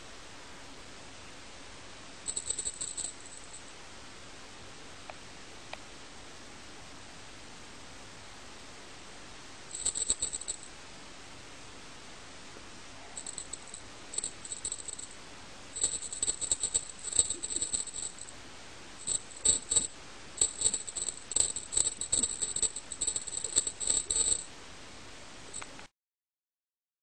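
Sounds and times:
toy ball jingling and rattling: 2.3 - 3.6, 9.7 - 10.7, 13.2 - 15.2, 15.8 - 18.3, 19.0 - 24.5.

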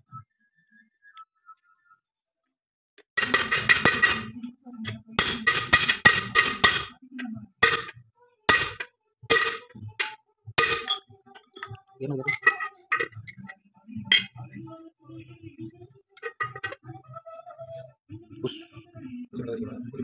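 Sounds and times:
hammer striking steel pipe: 5.2 - 6.9, 7.6 - 7.9, 8.5 - 11.0.

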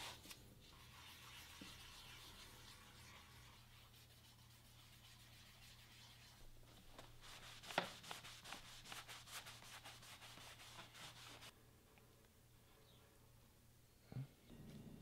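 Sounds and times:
cloth rubbing on leather: 0.0 - 11.5.

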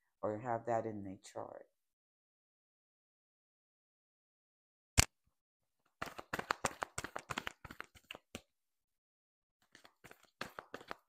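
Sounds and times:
cards being shuffled: 6.0 - 8.5, 9.6 - 11.0.

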